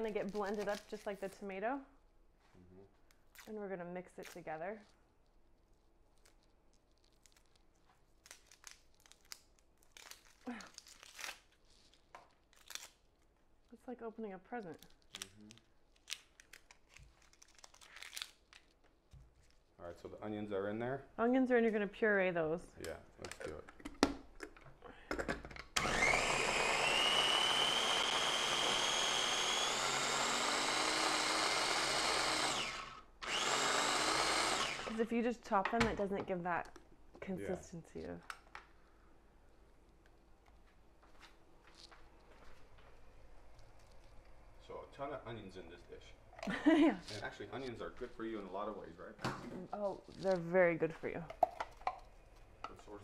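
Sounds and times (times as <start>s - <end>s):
onion skin crinkling and tearing: 0.2s - 1.2s, 3.0s - 3.5s, 5.2s - 13.7s, 14.7s - 19.8s
food chopper motor whining: 25.8s - 35.0s.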